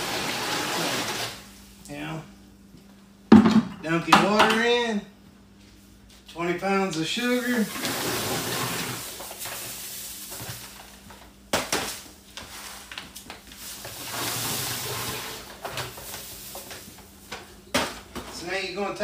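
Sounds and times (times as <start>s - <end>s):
sugar pouring hiss: 7.3s - 10.8s, 13.6s - 17.1s.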